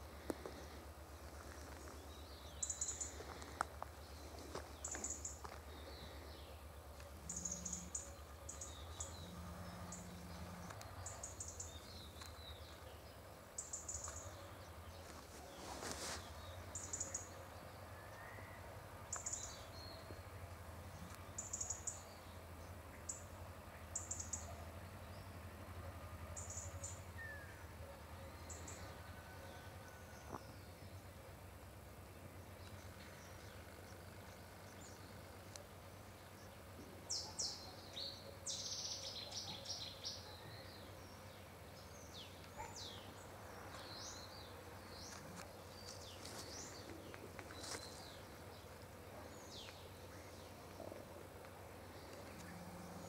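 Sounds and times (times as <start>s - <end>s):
small birds chirping: 0.0s - 25.3s, 30.1s - 53.0s.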